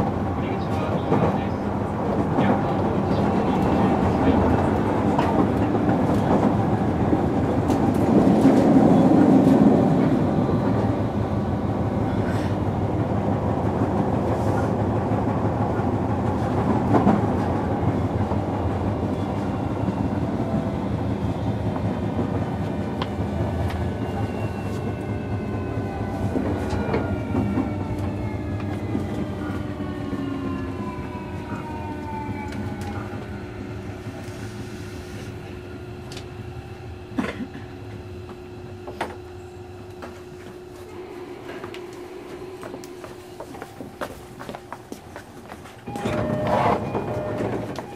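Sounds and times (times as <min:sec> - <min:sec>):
rail clicks: 0:00.0 - 0:11.2, 0:37.5 - 0:47.9
train wheel and track noise: 0:00.0 - 0:47.9.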